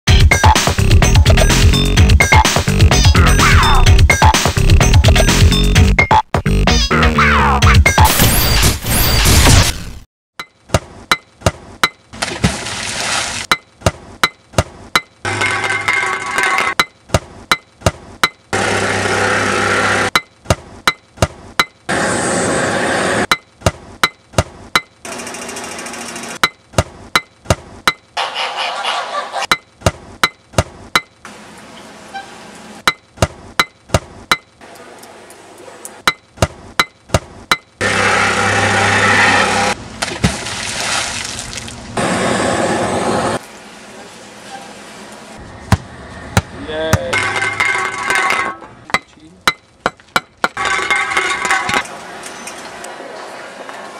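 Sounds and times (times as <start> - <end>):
pick striking ground: 45.7 - 51.8.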